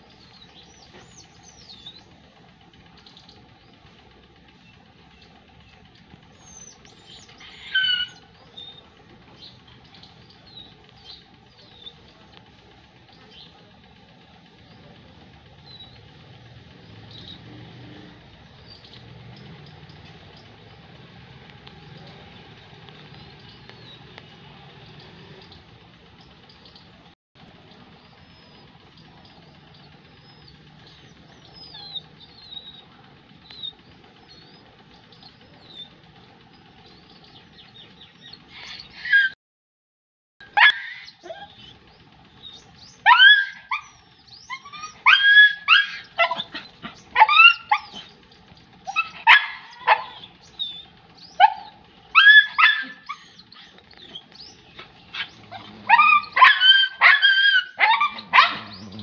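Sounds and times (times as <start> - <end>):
puppy barking in high yips: 6.6 - 8.8, 38.6 - 39.4, 40.4 - 41.7, 43.0 - 48.1, 48.8 - 54.2, 55.1 - 59.0.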